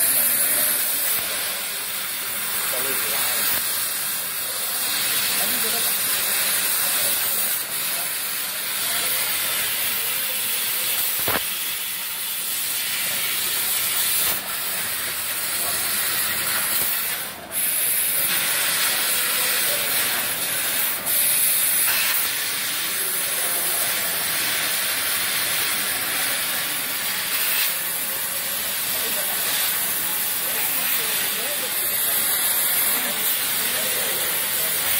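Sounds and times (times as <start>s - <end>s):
laser cutter gas hiss: 0.0s - 34.9s
sharp click: 11.1s - 11.5s.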